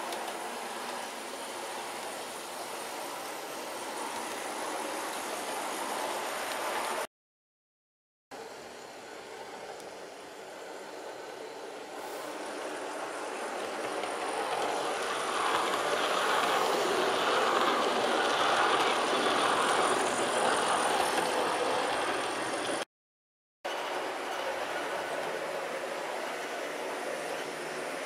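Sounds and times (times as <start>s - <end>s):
model train whirring on track: 0.0s - 7.1s, 8.4s - 22.8s, 23.7s - 28.0s.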